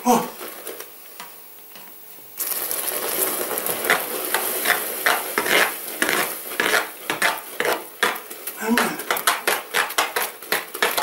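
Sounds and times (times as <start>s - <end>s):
sugar sizzling and bubbling: 0.0s - 11.0s
water pouring: 2.4s - 7.2s
spoon scraping a metal pot: 3.7s - 8.2s, 8.8s - 11.0s.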